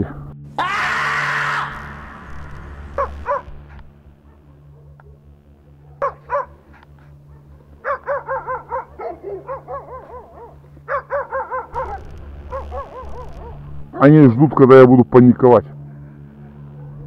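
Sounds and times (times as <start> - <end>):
dogs barking: 2.9 - 14.0, 16.3 - 17.0.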